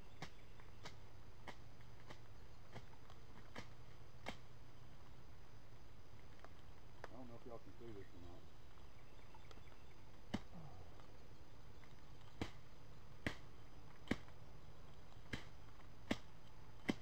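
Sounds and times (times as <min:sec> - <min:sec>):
dry twigs snapping: 0:00.2 - 0:04.5, 0:11.8 - 0:17.0.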